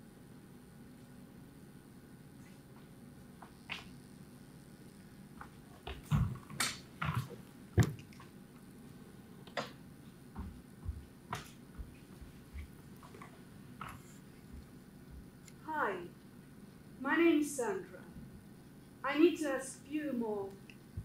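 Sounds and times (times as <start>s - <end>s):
knocks and clicks of chairs: 2.8s - 4.0s, 5.4s - 8.4s, 9.4s - 15.3s
footsteps on wooden floor: 10.3s - 15.3s.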